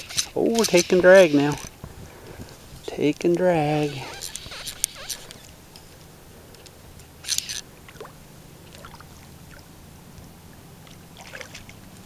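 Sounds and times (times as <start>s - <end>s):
fishing reel drag whirring: 0.0s - 1.8s, 3.6s - 5.6s, 7.2s - 7.7s
water lapping: 0.0s - 5.7s, 7.1s - 12.0s.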